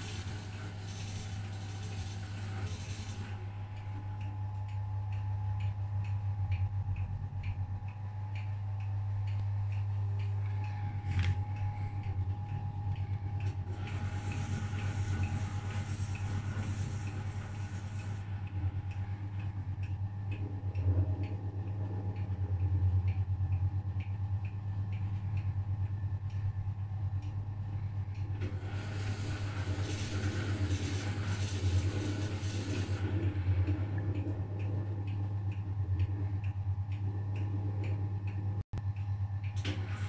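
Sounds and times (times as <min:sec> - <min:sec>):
washing machine motor hum: 0:00.0 - 0:40.0
hissing noise: 0:13.4 - 0:19.0.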